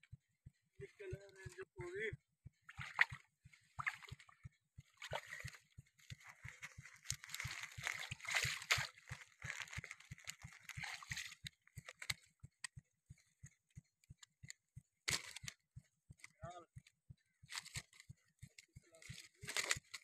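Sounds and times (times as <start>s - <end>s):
low pulsing: 0.0s - 19.9s
water sloshing and splashing: 2.7s - 11.5s
small clicks and rustles: 3.4s - 20.0s.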